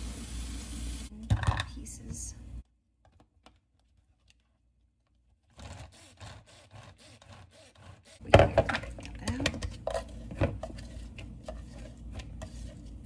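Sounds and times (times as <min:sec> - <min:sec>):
utensil scraping food: 0:09.6 - 0:13.0.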